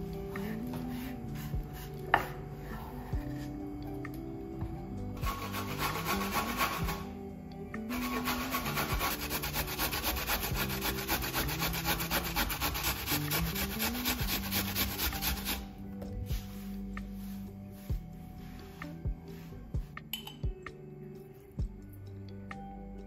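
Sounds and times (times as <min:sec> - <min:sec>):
soft background music: 0:00.0 - 0:23.0
grating on a hand grater: 0:05.2 - 0:07.1, 0:07.9 - 0:15.6.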